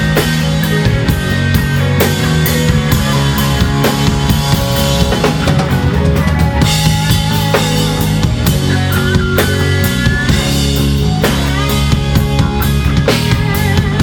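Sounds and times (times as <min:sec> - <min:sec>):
drum kit beat: 0:00.0 - 0:14.0
rock band playing: 0:00.0 - 0:14.0.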